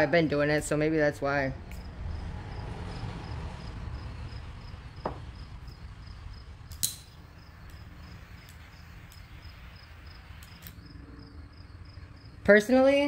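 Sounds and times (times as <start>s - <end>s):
low rumble: 0.7s - 12.4s
lighter click: 6.7s - 7.8s, 10.4s - 10.8s
butane torch click: 6.7s - 10.9s.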